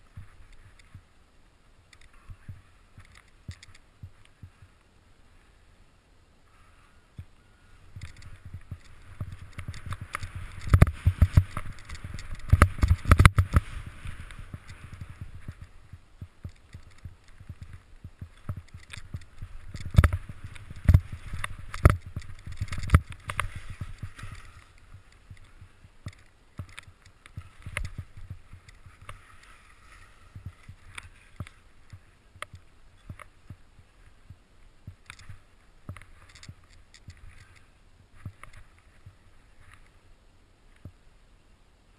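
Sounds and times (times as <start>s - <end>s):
skis swishing through powder snow: 7.6s - 40.0s.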